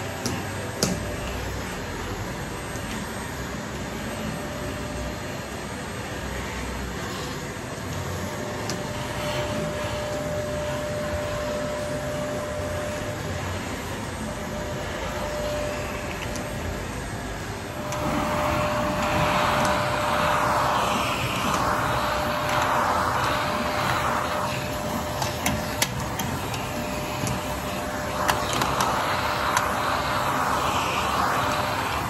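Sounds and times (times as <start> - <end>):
vacuum cleaner running: 0.0 - 32.0.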